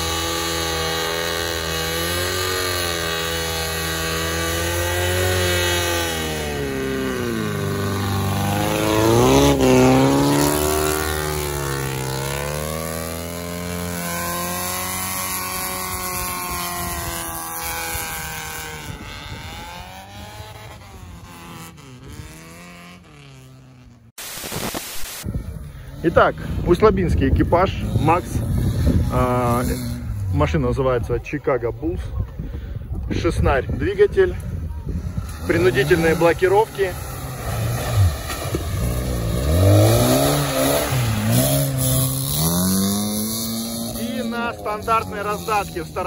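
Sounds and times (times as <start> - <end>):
race car engine revving: 0.0 - 23.6, 35.2 - 46.0.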